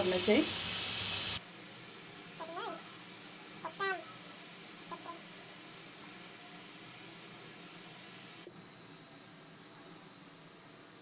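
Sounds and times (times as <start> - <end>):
syrup boiling hiss: 0.0 - 8.5.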